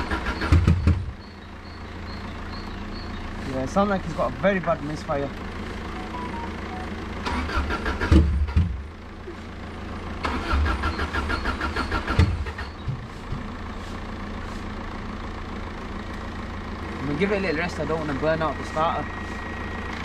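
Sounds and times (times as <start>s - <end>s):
engine cranking on starter: 0.0s - 1.2s, 7.1s - 8.9s, 10.1s - 12.9s
low engine drone: 0.0s - 20.0s.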